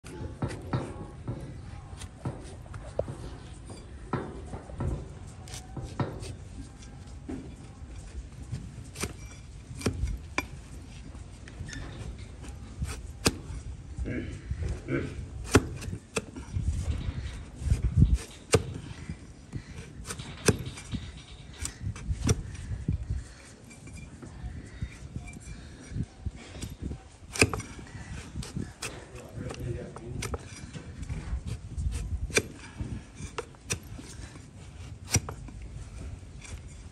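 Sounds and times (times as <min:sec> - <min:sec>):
blade crunching through hoof: 0:08.1 - 0:24.1, 0:24.9 - 0:36.9.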